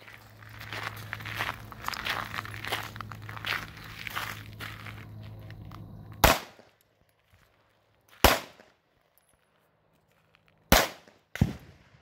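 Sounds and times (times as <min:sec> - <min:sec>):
pistol shots: 0:06.2 - 0:06.7, 0:08.2 - 0:08.8, 0:10.7 - 0:12.0.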